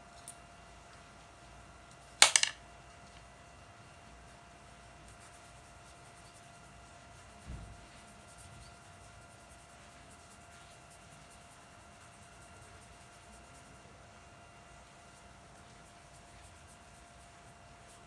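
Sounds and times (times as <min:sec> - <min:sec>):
faint hum: 0:00.0 - 0:18.0
brush strokes on paper: 0:04.6 - 0:18.0.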